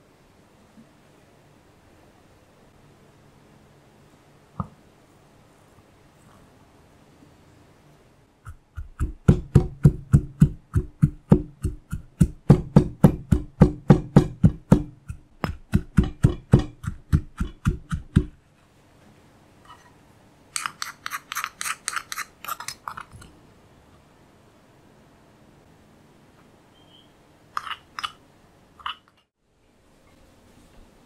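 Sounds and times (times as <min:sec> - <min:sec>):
pestle pounding in stone mortar: 0:08.5 - 0:18.4
wooden spoon scraping mortar: 0:20.6 - 0:23.3, 0:27.6 - 0:28.2.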